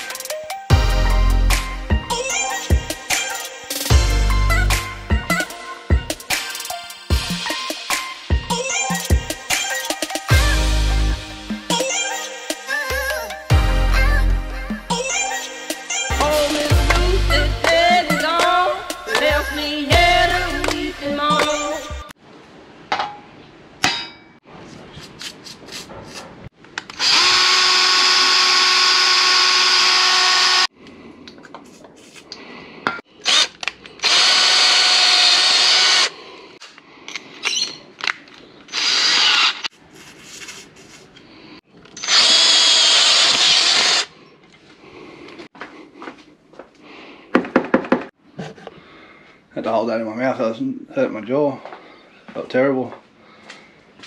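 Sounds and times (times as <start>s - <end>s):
power tool whining: 27.0s - 30.7s, 33.2s - 36.1s, 38.7s - 39.7s, 41.9s - 44.1s.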